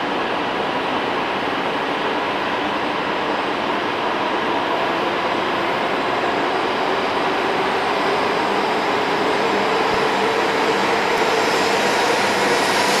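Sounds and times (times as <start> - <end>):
high-speed train rolling past: 0.0 - 13.0.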